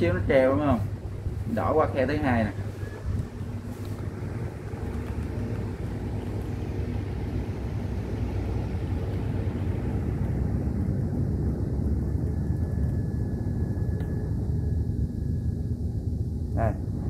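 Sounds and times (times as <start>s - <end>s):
computer fans humming: 0.0s - 17.0s
faint high whine: 0.0s - 17.0s.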